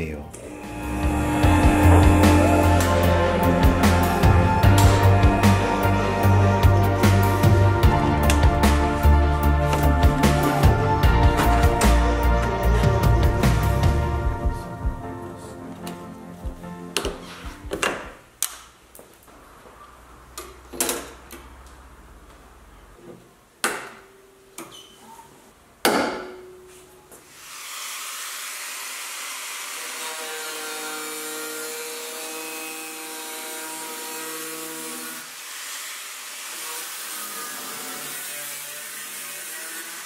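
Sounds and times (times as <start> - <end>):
angle grinder cutting steel: 0.4 - 13.7, 27.4 - 40.0.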